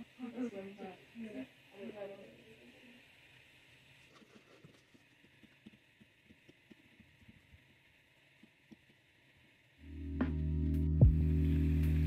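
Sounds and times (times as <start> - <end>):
background music: 9.8 - 12.0.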